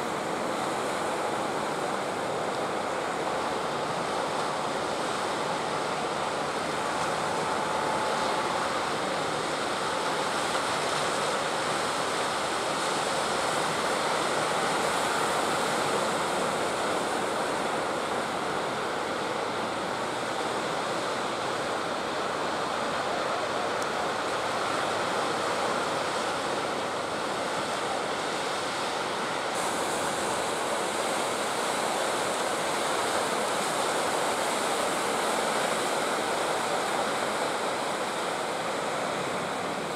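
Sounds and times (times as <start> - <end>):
surf and breaking waves: 0.0 - 39.9.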